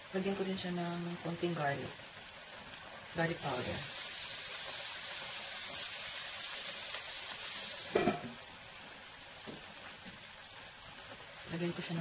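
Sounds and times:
beans sizzling in oil: 0.0 - 12.0
lid clattering on pan: 7.9 - 8.4.

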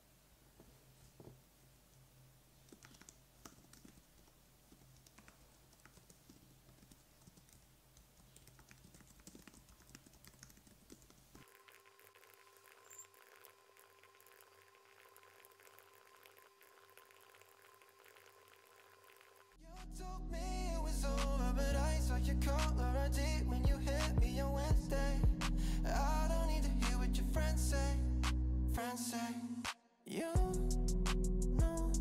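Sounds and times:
keyboard typing clicks: 2.7 - 4.0, 4.7 - 11.2.

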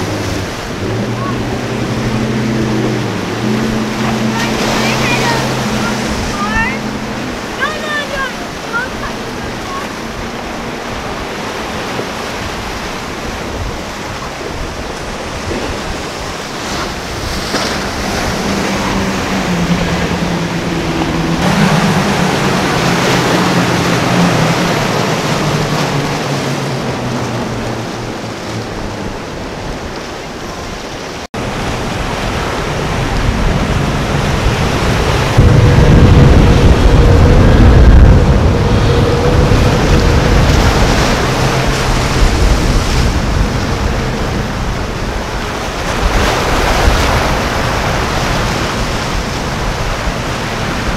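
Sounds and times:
outboard engines passing: 0.0 - 50.9
rushing spray and surf: 0.0 - 50.9
wind on microphone: 0.0 - 50.9.

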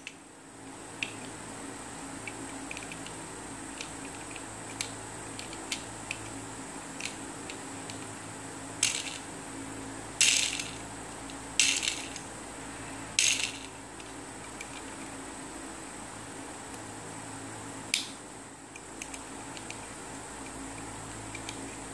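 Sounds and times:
fidget toy rings whirring: 8.8 - 9.3, 10.2 - 10.8, 11.6 - 12.3, 13.2 - 13.8.

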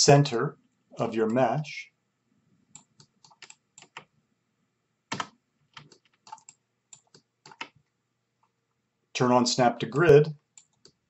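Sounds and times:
computer keyboard keys clicking: 2.8 - 4.1, 5.1 - 7.8.

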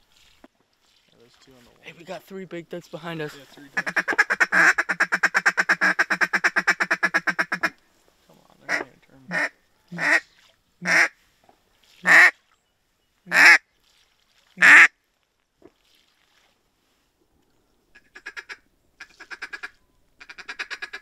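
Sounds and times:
duck call chatter: 3.8 - 7.8, 8.7 - 10.2, 10.8 - 11.1, 12.1 - 12.3, 13.3 - 13.6, 14.6 - 14.9, 18.0 - 21.0
duck call drawn-out quacks: 3.8 - 7.8, 8.7 - 10.2, 10.8 - 11.1, 12.0 - 12.3, 13.3 - 13.6, 14.6 - 14.9, 18.0 - 21.0.

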